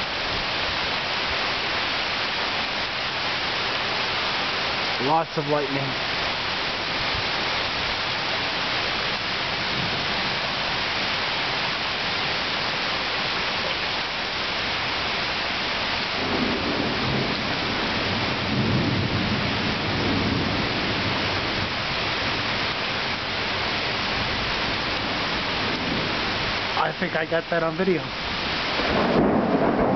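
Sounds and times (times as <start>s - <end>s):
heavy rain falling: 0.0s - 29.9s
thunder rumbling: 5.9s - 10.8s, 15.8s - 29.9s.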